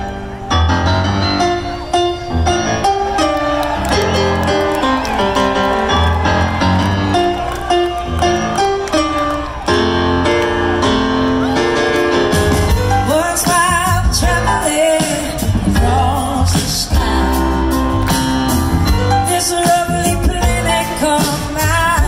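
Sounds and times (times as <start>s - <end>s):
live rock band playing: 0.0s - 22.0s
woman singing with vibrato: 19.2s - 22.0s.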